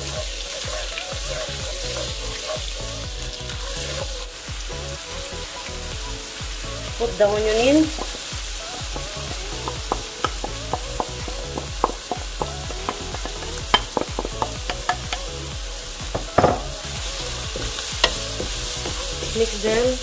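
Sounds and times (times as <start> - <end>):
onion and garlic sizzling in oil: 0.0 - 20.0
loud knock: 16.2 - 16.6.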